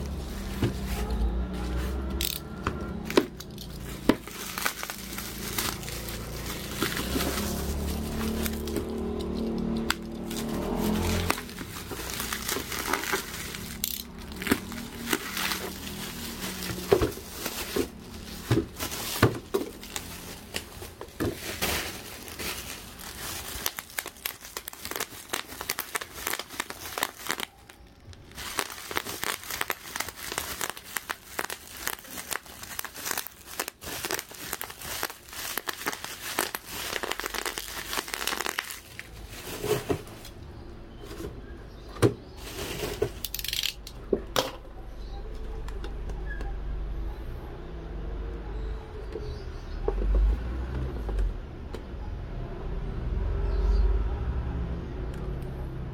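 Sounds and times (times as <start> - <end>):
plastic packaging crinkling: 0.0 - 40.4, 42.4 - 44.0.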